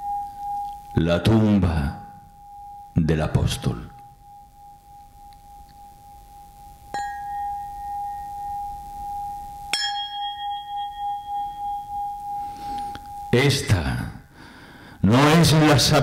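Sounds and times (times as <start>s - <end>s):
small brass bell ringing: 2.0s - 3.0s, 6.9s - 13.4s.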